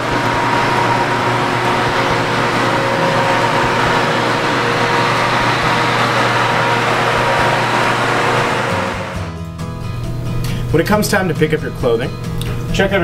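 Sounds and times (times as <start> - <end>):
ironing machine drone and hiss: 0.0 - 9.3.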